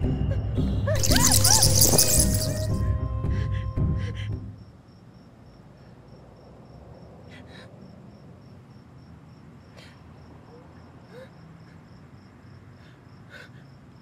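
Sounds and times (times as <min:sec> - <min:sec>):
music: 0:00.0 - 0:04.7
crickets chirping: 0:01.0 - 0:02.9, 0:04.1 - 0:14.0.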